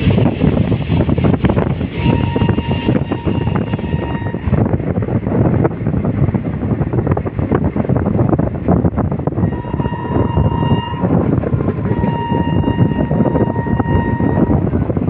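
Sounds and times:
rushing wind: 0:00.0 - 0:15.0
train rumbling and clattering: 0:00.0 - 0:15.0
train horn: 0:01.9 - 0:04.6, 0:09.4 - 0:14.8.

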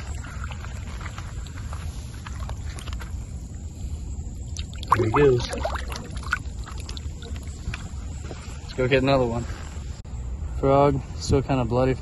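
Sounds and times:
rustling in grass: 0:00.0 - 0:03.9
small water splashes: 0:04.5 - 0:07.9
footsteps: 0:07.2 - 0:08.7.

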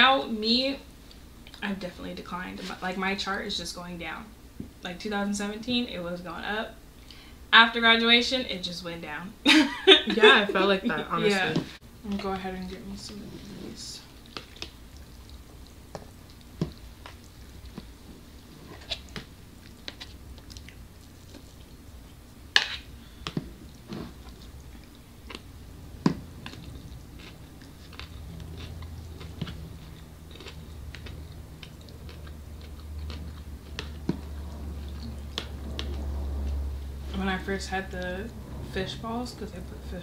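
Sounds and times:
people chewing: 0:12.2 - 0:37.0.

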